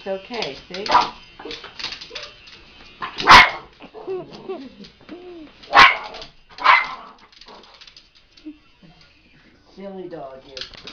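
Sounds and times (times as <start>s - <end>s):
small dog barking: 3.1s - 3.7s, 5.7s - 7.1s
dog whining: 3.1s - 7.7s, 8.4s - 9.6s.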